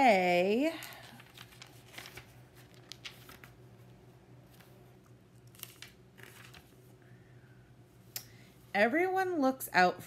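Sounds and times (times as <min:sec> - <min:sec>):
book pages rustling: 0:00.8 - 0:07.0.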